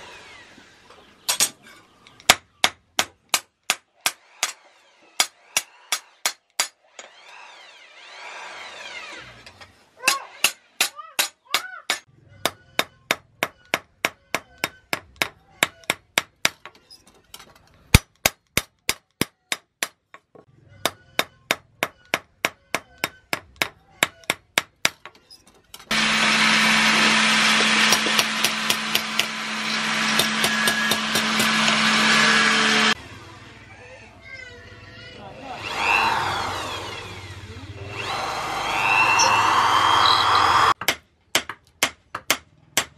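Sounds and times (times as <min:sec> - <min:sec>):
loud machine hum: 0:25.9 - 0:33.7, 0:35.5 - 0:40.8
hammer striking metal on anvil: 0:30.0 - 0:32.0.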